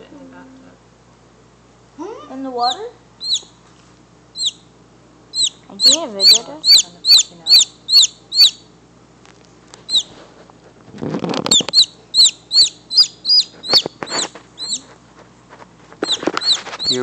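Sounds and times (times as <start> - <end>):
chick peeping: 2.6 - 3.6, 4.3 - 4.6, 5.3 - 8.7, 9.8 - 10.2, 11.3 - 14.9, 16.0 - 17.0.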